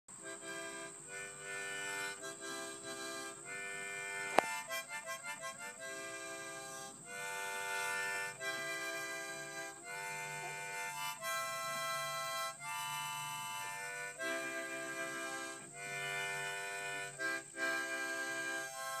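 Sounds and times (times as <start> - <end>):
harmonica playing held chords: 0.1 - 19.0.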